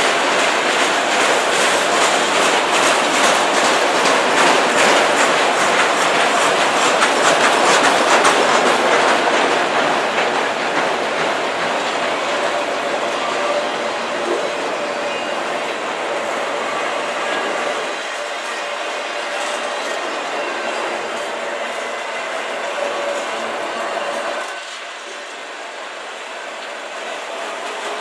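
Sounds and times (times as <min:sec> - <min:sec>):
freight train cars rumbling: 0:00.0 - 0:28.0
train wheels clacking on rails: 0:00.0 - 0:28.0.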